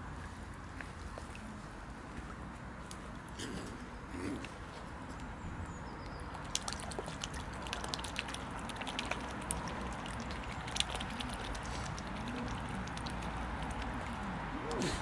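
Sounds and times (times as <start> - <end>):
swans dabbling in water: 5.2 - 15.0.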